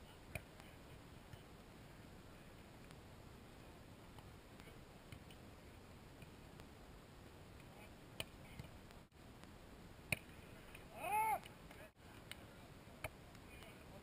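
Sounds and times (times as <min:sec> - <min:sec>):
background hiss: 0:00.0 - 0:14.0
hand slapping volleyball: 0:04.2 - 0:05.4, 0:10.1 - 0:10.8.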